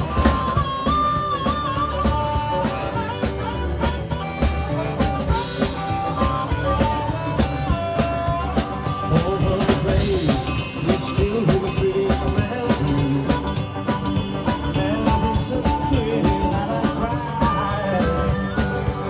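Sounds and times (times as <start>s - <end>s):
amplified harmonica: 0.0s - 19.0s
drum kit: 0.0s - 19.0s
electric guitar: 0.0s - 19.0s.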